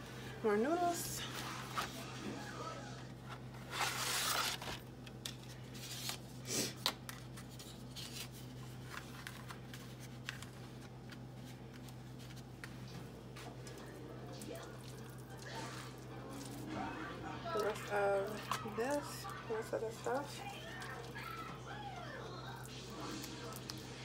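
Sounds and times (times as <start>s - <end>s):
cardboard box and packaging rustling: 3.2s - 6.2s, 7.2s - 12.6s.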